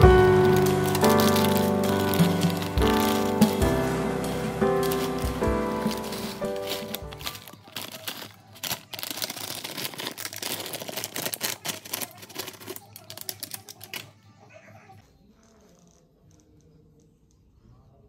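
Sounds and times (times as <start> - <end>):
soft background music: 0.0 - 8.7
crisp crackling of pie crust: 0.0 - 14.2.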